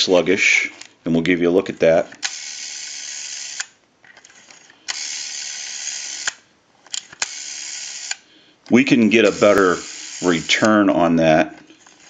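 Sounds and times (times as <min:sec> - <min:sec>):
rotary dial whirring: 0:01.9 - 0:12.0.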